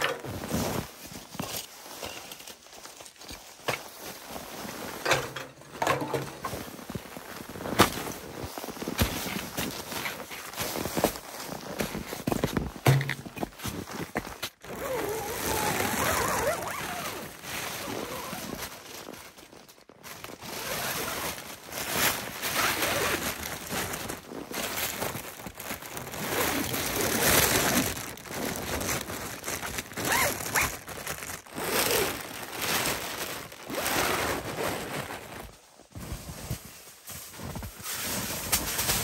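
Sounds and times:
tent fabric rustling: 0.0s - 39.0s
tent zippers: 3.4s - 13.4s, 14.6s - 19.2s, 20.3s - 24.5s, 26.0s - 35.5s.

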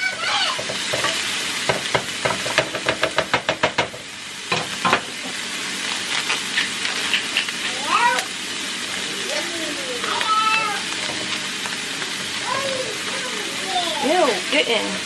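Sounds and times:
spatula scraping pan: 0.0s - 3.7s
onions sizzling in oil: 0.0s - 15.0s
knock: 1.7s - 4.0s.

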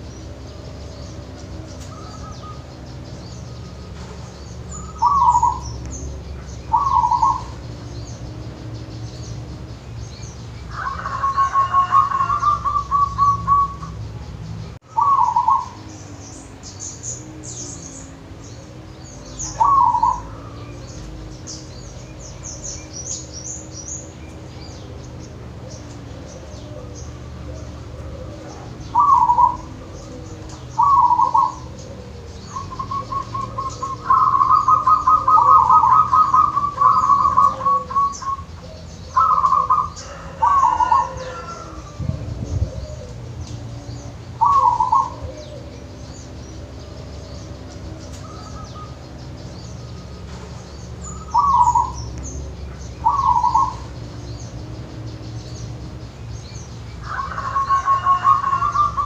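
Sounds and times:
dove cooing: 0.0s - 14.2s, 14.9s - 56.2s, 57.0s - 59.0s
small birds chirping: 0.0s - 59.0s
steady low hum: 12.6s - 40.0s.

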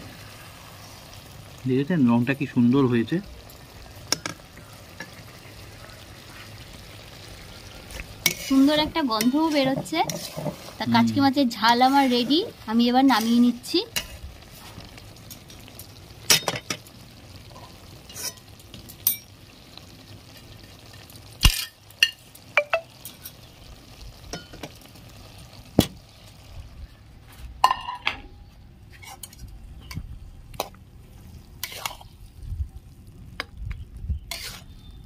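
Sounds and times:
faint steady hiss: 0.0s - 27.7s
metal utensil scraping pan: 7.9s - 16.8s, 17.6s - 19.3s, 28.9s - 30.0s, 31.6s - 32.1s, 34.3s - 34.8s.

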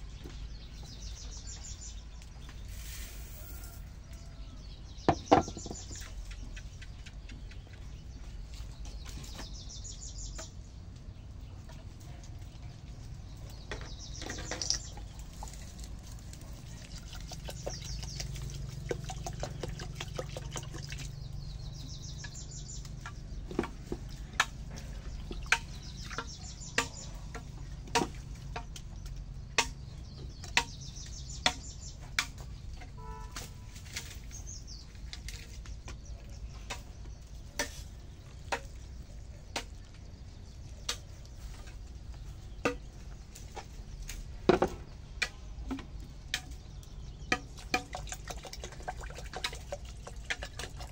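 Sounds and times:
birds chirping: 0.0s - 50.9s
water pouring from a bottle: 2.5s - 3.8s, 14.3s - 21.8s, 47.6s - 50.9s.

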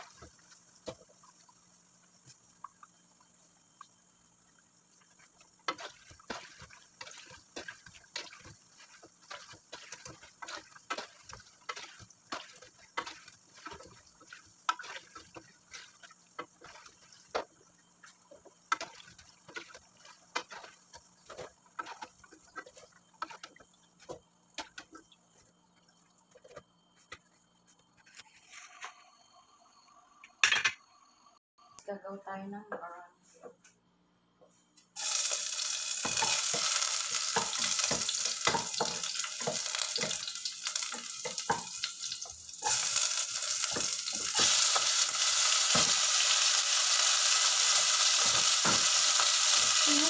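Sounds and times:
hot oil crackling and popping: 0.0s - 28.1s, 35.0s - 50.0s
metal spoon stirring in wok: 5.0s - 25.0s, 35.9s - 46.7s.

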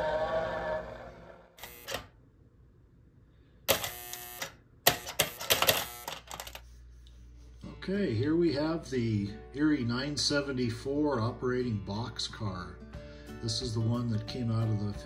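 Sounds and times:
music: 7.5s - 15.0s.

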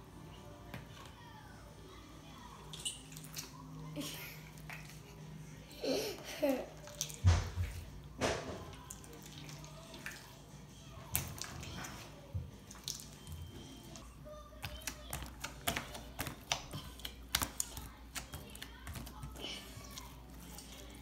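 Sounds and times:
slime squelching: 6.7s - 21.0s.

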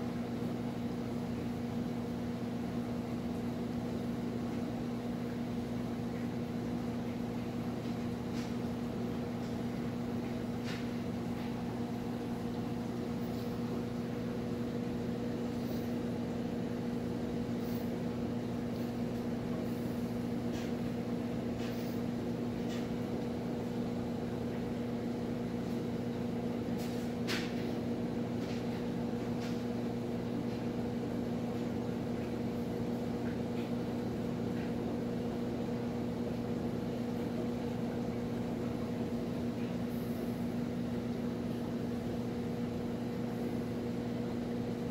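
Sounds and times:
aquarium pump humming: 0.0s - 44.9s.

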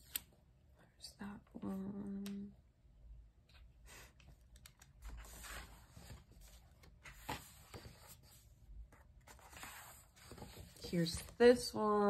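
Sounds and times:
paper pages rustling: 4.6s - 11.6s.

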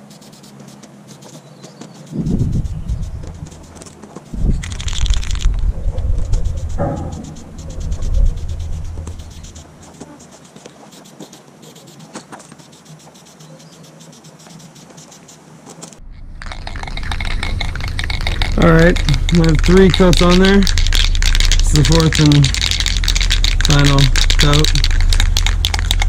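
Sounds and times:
spray paint can hissing: 0.0s - 26.0s
wind buffeting microphone: 2.2s - 3.7s, 4.3s - 9.8s.

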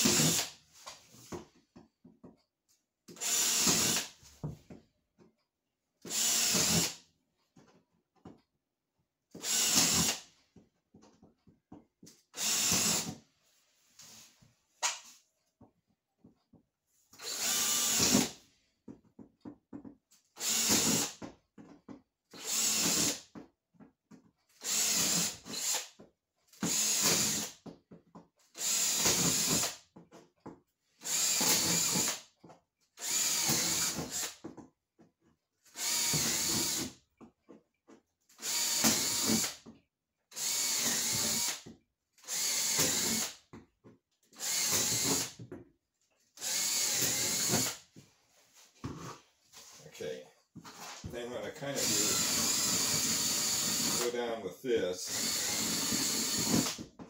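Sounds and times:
cordless drill boring into wood: 0.0s - 0.5s, 3.1s - 4.2s, 6.0s - 7.0s, 9.3s - 10.2s, 12.4s - 13.2s, 17.2s - 18.4s, 20.4s - 21.2s, 22.3s - 23.3s, 24.5s - 27.6s, 28.5s - 29.8s, 31.0s - 32.3s, 33.0s - 34.4s, 35.6s - 37.0s, 38.3s - 39.6s, 40.3s - 43.4s, 44.3s - 45.4s, 46.4s - 47.8s, 51.0s - 56.9s.

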